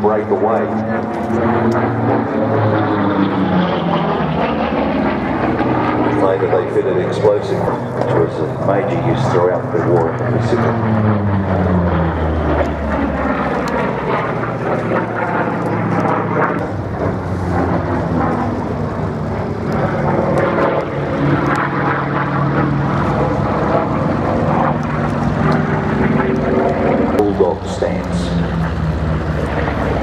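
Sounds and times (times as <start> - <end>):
propeller plane flying overhead: 0.0 - 30.0.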